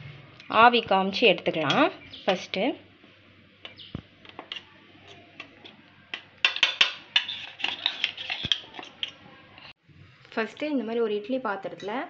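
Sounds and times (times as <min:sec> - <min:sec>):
fingers scraping steel bowl: 0:06.8 - 0:09.1.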